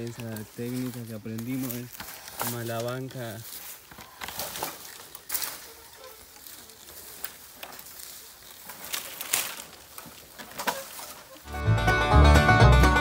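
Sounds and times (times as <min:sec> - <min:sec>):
bamboo rustling and cracking: 0:00.0 - 0:11.5
banjo music: 0:11.4 - 0:13.0.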